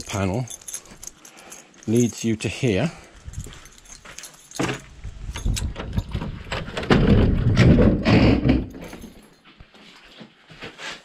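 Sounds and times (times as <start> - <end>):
keys rattling: 0.0 - 6.3, 8.7 - 9.5
door scraping open: 5.6 - 8.8.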